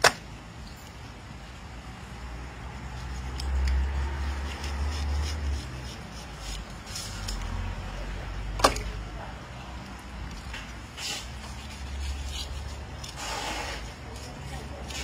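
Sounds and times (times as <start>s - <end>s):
knife scraping fish flesh: 2.9s - 7.5s, 10.9s - 15.0s.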